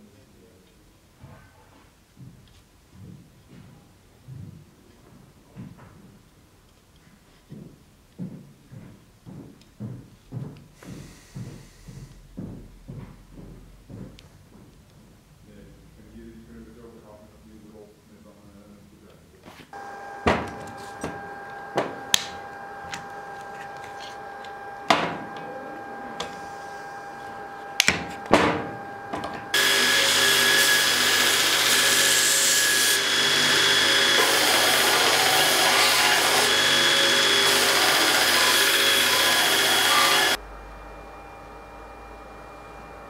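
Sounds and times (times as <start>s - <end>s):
belt grinder sanding wood: 19.8s - 40.4s
wood and tools knocking on workbench: 20.2s - 21.2s, 24.9s - 25.3s.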